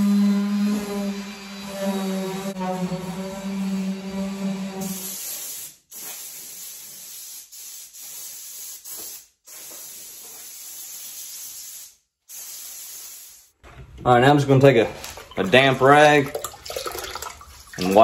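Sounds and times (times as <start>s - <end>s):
compressed air blow gun hissing: 4.8s - 13.6s.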